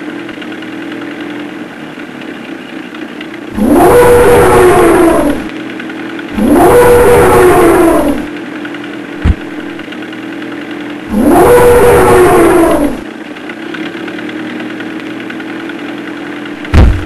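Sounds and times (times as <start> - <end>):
tank engine running: 0.0 - 17.0
loud monster roar: 3.6 - 5.5, 6.4 - 8.3, 11.1 - 13.1.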